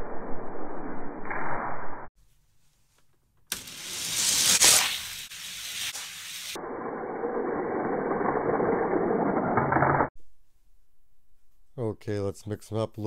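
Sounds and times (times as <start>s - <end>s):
toy cars rushing hiss: 3.5s - 6.6s
toy cars rolling rumble: 6.3s - 10.1s.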